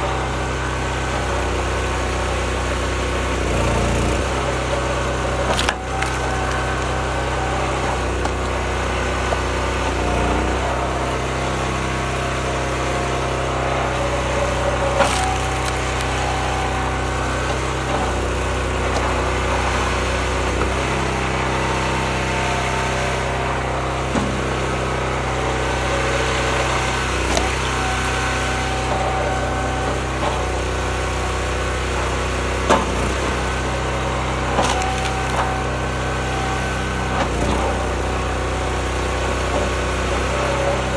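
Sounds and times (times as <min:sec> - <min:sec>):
log splitter engine running: 0:00.0 - 0:40.9
logs cracking as they split: 0:05.4 - 0:10.4, 0:14.1 - 0:20.7, 0:34.5 - 0:35.7.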